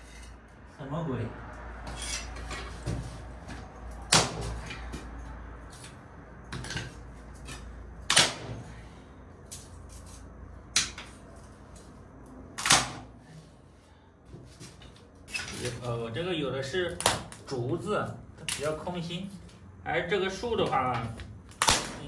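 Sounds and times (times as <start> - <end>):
axe chopping wood: 4.1 - 5.1, 7.4 - 8.6, 21.6 - 22.0.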